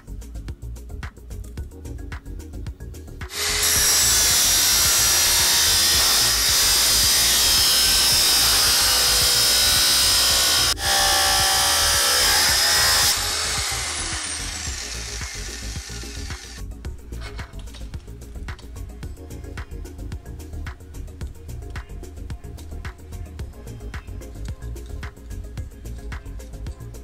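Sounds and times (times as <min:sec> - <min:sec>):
abrasive saw cutting steel: 0:03.3 - 0:16.6
saw disc spinning down: 0:03.3 - 0:16.6.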